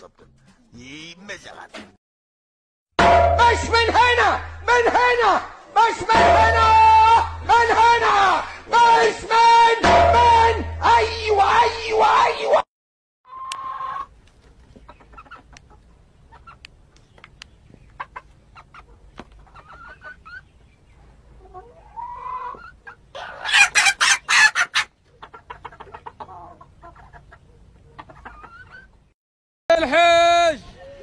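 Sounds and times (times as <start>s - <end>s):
chickens clucking: 13.3s - 29.1s.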